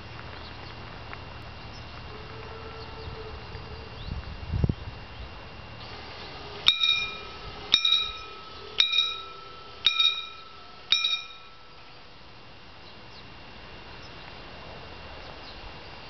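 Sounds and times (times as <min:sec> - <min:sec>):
level crossing warning bell: 0:05.9 - 0:12.1.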